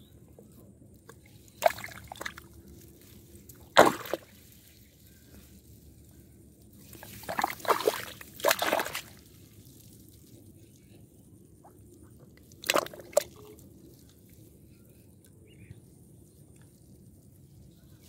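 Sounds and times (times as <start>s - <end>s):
muddy water splashing: 1.2s - 5.0s, 6.8s - 10.4s, 12.4s - 14.0s.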